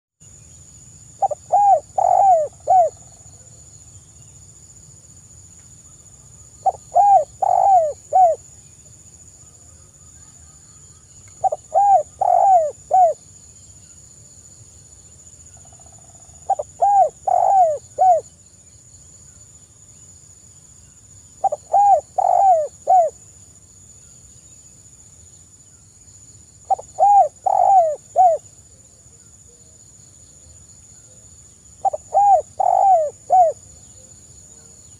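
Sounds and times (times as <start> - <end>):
dove cooing: 1.2 - 3.0, 6.6 - 8.4, 11.4 - 13.2, 16.4 - 18.2, 21.4 - 23.2, 26.7 - 28.4, 31.8 - 33.6.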